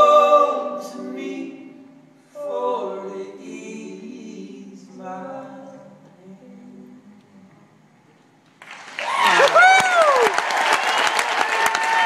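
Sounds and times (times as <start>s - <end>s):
voices singing in harmony: 0.0s - 7.9s.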